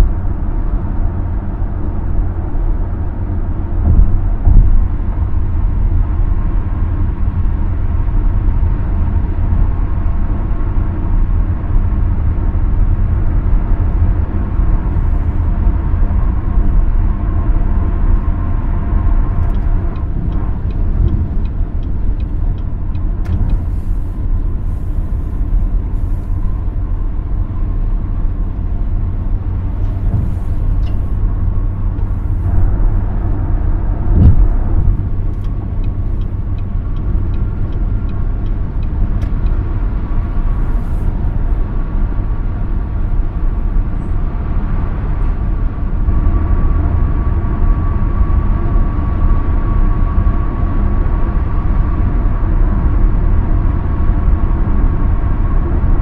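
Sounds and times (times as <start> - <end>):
tyre and road rumble: 0.0 - 49.0
car engine noise: 0.0 - 56.0
short thump: 3.8 - 4.8, 34.1 - 35.0.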